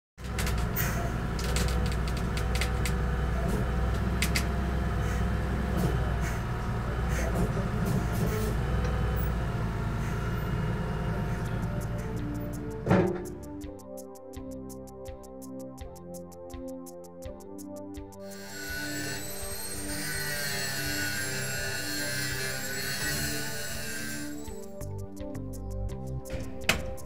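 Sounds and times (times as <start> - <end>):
forklift engine running: 0.2 - 13.6.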